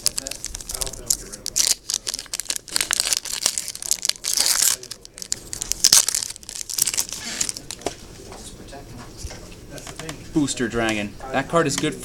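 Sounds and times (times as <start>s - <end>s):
foil wrapper crinkling and tearing: 0.0s - 8.0s.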